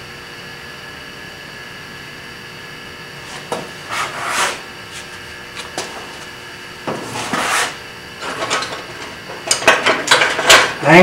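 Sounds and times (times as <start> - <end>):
steady hum: 0.0 - 11.0
rough scraping of metal: 3.2 - 5.9, 6.9 - 9.2.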